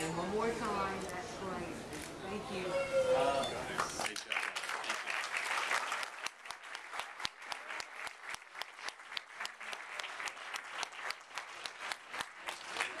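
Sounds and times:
close hands clapping: 3.7s - 13.0s
crowd applauding: 3.7s - 13.0s.

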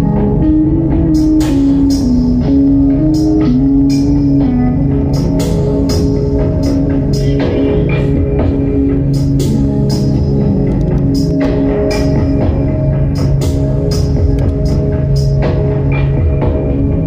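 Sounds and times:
guitar melody: 0.0s - 17.0s
drum beat: 5.2s - 17.0s.

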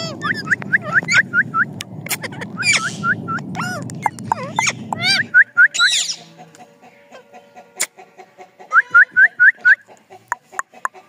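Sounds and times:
parakeets chirping and screeching: 0.0s - 6.3s
low background rumble: 0.0s - 6.4s.

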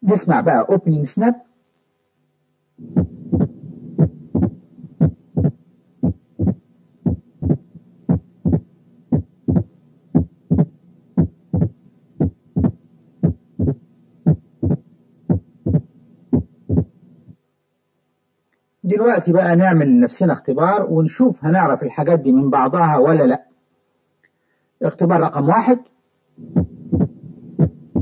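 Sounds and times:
faint low hum: 0.0s - 28.0s
snapping heartbeats: 2.8s - 17.0s, 26.4s - 28.0s.

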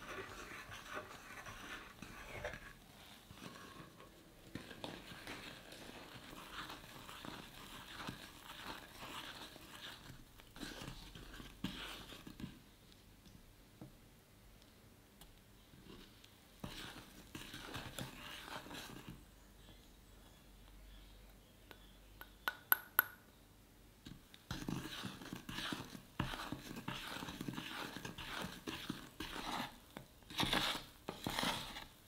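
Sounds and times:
wooden spatula stirring in saucepan: 0.0s - 12.6s, 15.8s - 19.3s, 24.1s - 32.0s.

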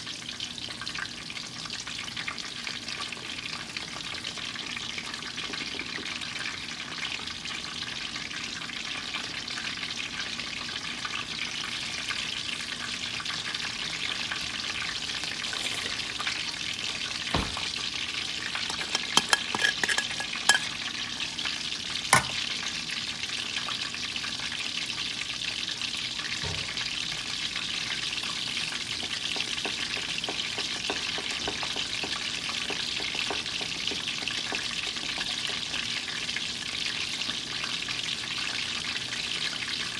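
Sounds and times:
chicken sizzling in hot oil: 0.0s - 39.9s
metal tongs knocking a bowl: 18.7s - 20.8s, 22.2s - 22.4s.

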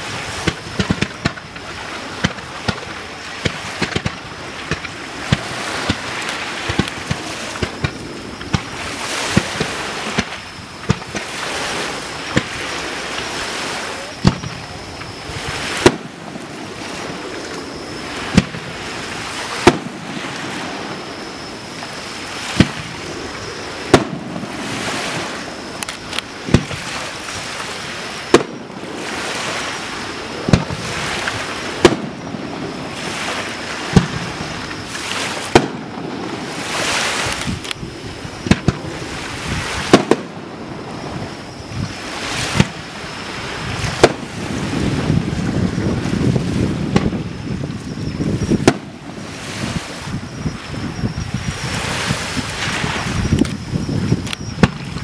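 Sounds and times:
firework shells bursting: 0.0s - 13.4s, 14.2s - 21.2s, 21.8s - 29.8s, 30.4s - 37.8s, 38.4s - 41.2s, 43.6s - 45.1s, 48.5s - 49.7s.

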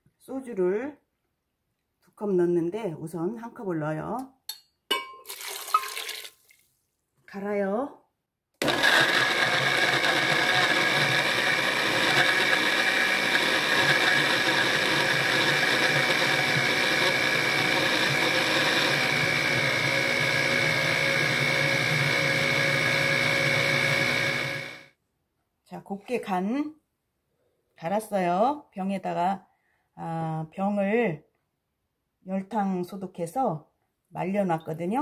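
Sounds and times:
blender motor whining: 8.6s - 24.9s.

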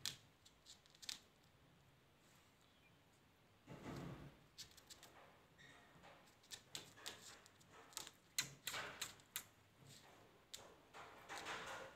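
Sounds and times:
parakeet beak and feet tapping: 6.0s - 9.6s, 10.5s - 11.9s.

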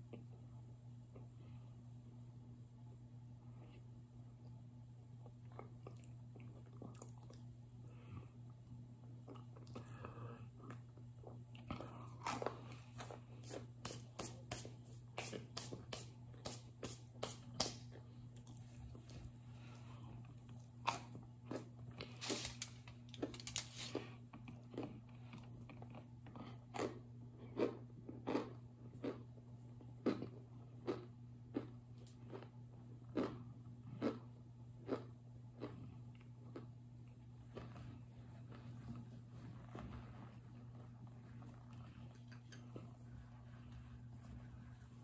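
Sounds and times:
steady low hum: 0.0s - 45.0s
chewing crunches: 5.2s - 7.5s, 9.2s - 13.6s, 17.8s - 38.7s.

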